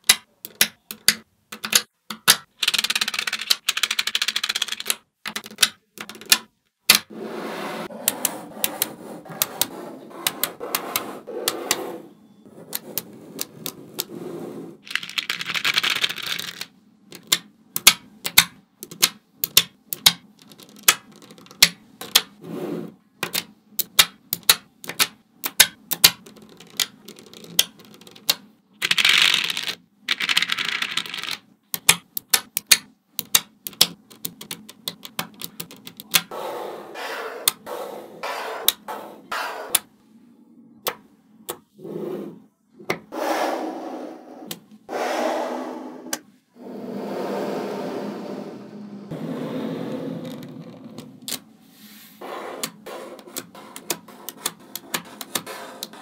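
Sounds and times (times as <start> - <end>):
magnetic balls clicking: 0.0 - 7.1, 14.8 - 22.3, 23.2 - 36.3.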